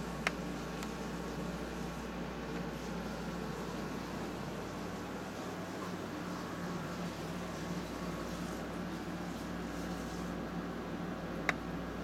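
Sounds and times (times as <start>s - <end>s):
steady hiss and low hum: 0.0s - 12.0s.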